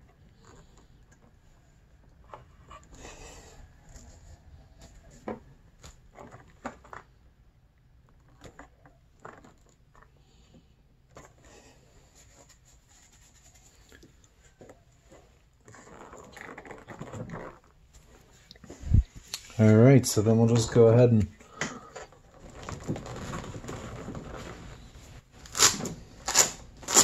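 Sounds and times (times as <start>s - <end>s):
wires rustling: 8.0s - 27.0s.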